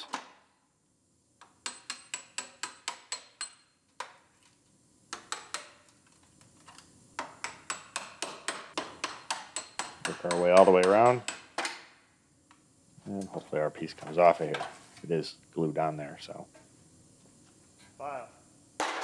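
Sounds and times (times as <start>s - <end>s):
hammer striking metal: 7.4s - 11.5s.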